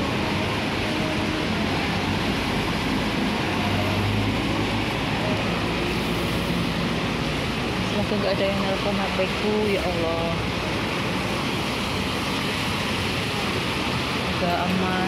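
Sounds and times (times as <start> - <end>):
bus engines passing: 0.0 - 15.0
tram passing: 0.0 - 15.0
tyre noise on wet road: 0.0 - 15.0.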